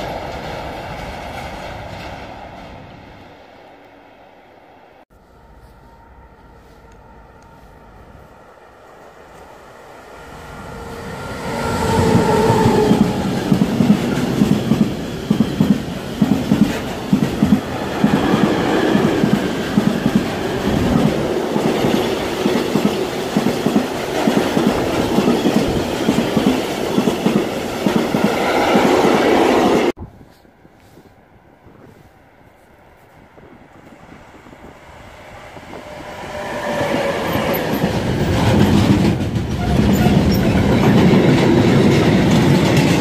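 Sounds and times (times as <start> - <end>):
train rumbling past: 0.0 - 43.0
wheels clacking over rail joints: 36.6 - 43.0.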